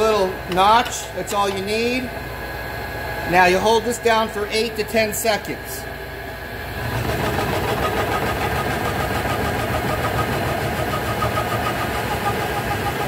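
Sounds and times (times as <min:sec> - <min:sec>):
dough machine motor rattling: 0:06.8 - 0:13.0.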